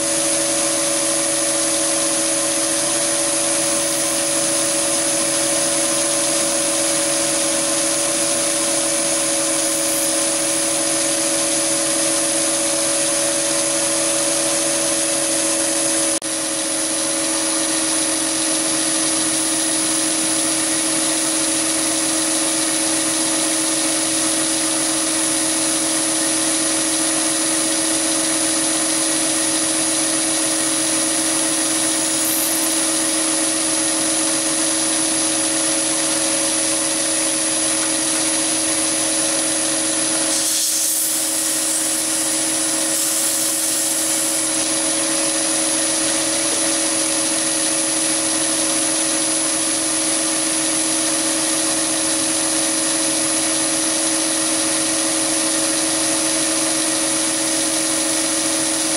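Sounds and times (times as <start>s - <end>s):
lathe whining: 0.0s - 15.4s, 16.8s - 48.1s
boring bar cutting steel: 2.1s - 11.7s, 29.0s - 35.3s, 37.6s - 46.3s.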